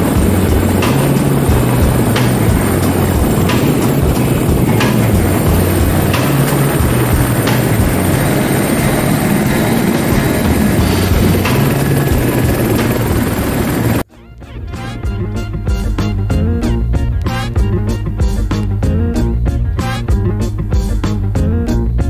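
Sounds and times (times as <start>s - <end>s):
helicopter turbine and rotor: 0.0s - 14.1s
music: 0.0s - 22.0s.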